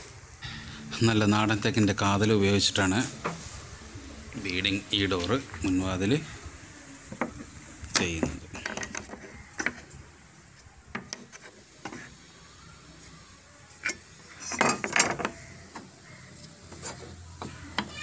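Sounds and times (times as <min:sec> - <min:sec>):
tools tapping on wooden boards: 0:07.1 - 0:12.1, 0:13.8 - 0:18.0.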